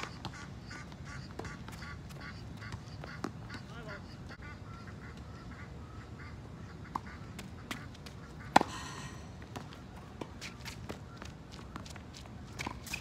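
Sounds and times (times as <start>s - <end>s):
distant tennis hits and bounces: 0.0s - 4.4s, 6.7s - 13.0s
racket hitting tennis ball: 6.9s - 8.8s.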